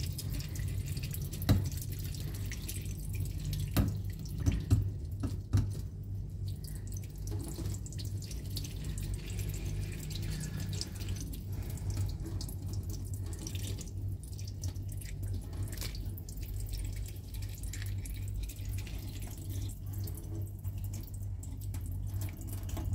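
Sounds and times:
tap water splashing into sink: 0.0s - 18.3s, 18.9s - 22.9s.

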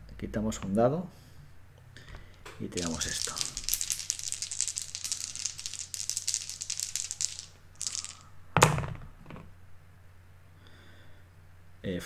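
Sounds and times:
dice clattering on table: 2.1s - 9.5s
dice rattling in hand: 2.6s - 9.4s.

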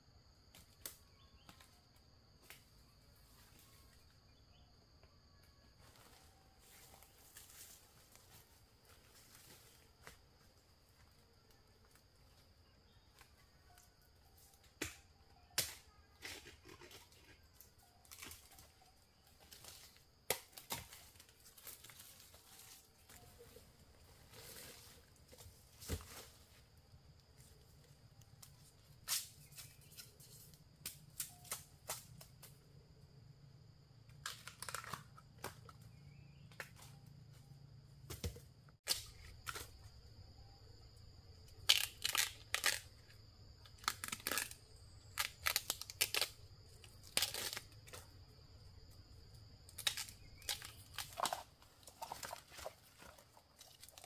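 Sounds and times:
rustling and scraping noises: 21.4s - 26.8s.

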